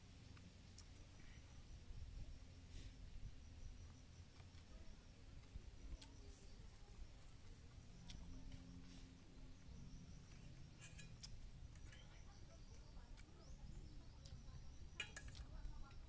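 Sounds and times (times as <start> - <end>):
metal spoon clinking on bowl: 10.8 - 12.1, 15.0 - 15.5.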